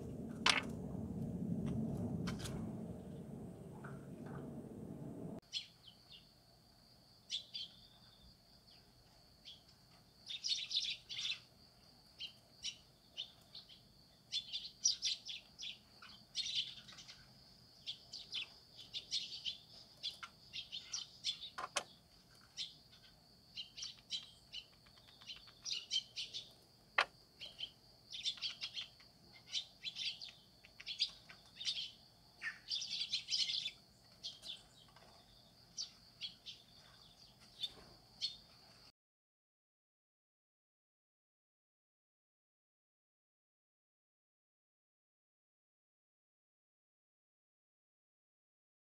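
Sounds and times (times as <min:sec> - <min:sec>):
small birds chirping: 0:05.4 - 0:06.3, 0:07.3 - 0:26.7, 0:27.3 - 0:38.9.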